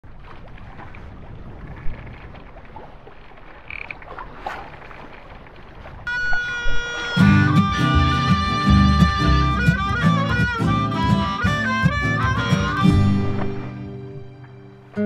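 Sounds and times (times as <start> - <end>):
sea noise: 0.0 - 15.0
wind: 0.0 - 15.0
music: 6.1 - 15.0.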